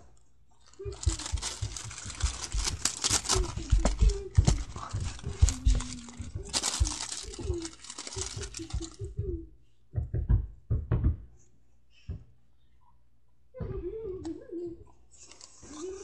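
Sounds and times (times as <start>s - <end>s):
close rustling and crinkling: 0.1s - 9.3s.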